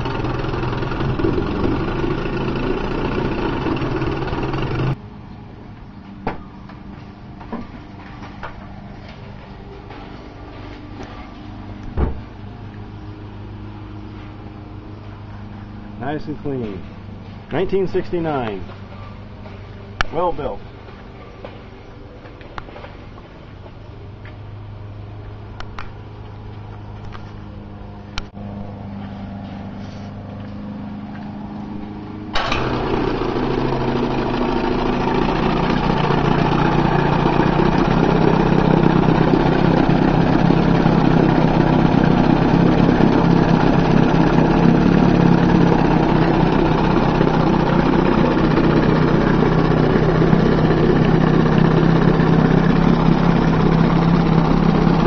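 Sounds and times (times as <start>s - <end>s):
outboard engine running: 0.0s - 5.0s, 29.8s - 55.0s.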